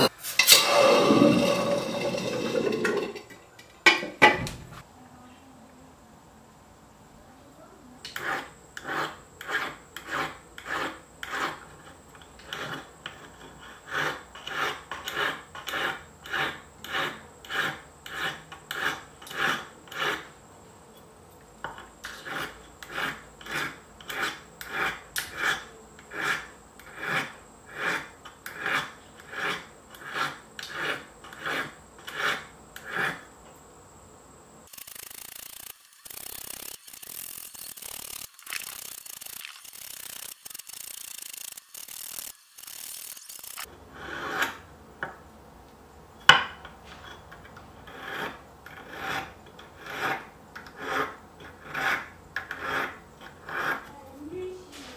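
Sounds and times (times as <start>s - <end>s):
steady hiss-like noise: 0.0s - 12.2s, 29.0s - 43.8s
file rasping on metal: 8.1s - 20.4s, 22.1s - 33.3s, 34.8s - 44.6s, 47.8s - 53.9s.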